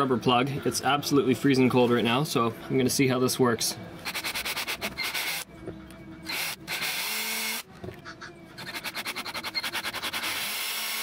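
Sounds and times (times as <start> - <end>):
power drill boring through rubber: 4.1 - 5.4, 6.3 - 7.6, 8.6 - 11.0.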